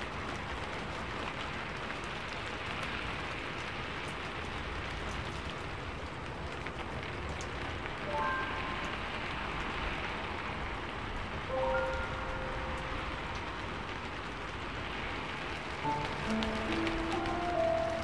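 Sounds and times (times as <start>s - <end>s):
raindrop ticks: 0.0s - 18.0s
steady rain falling: 0.0s - 18.0s
brief high tones: 8.1s - 9.4s.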